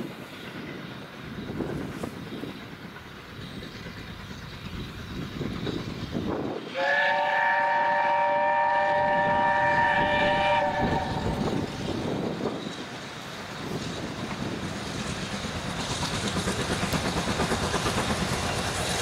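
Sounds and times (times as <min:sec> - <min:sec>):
steam locomotive running: 0:00.0 - 0:19.0
steam whistle blast: 0:06.7 - 0:11.7.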